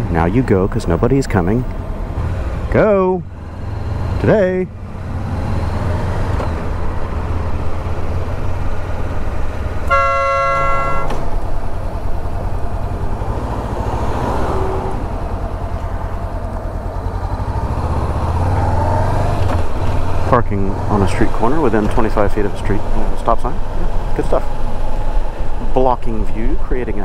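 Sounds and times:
motorcycle engine drone: 0.0s - 27.0s
road and wind noise: 0.0s - 27.0s
vehicle horn honking: 9.9s - 11.4s.

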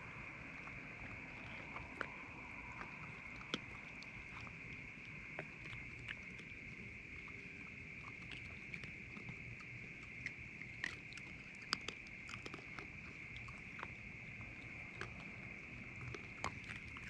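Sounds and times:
raccoons gnawing on pumpkin: 0.0s - 17.0s.

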